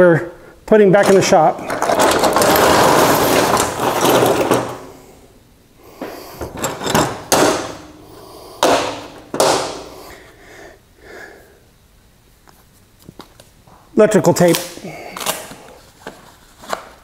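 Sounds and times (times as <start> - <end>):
metal tools clanking on metal: 1.0 - 5.0, 6.4 - 8.0.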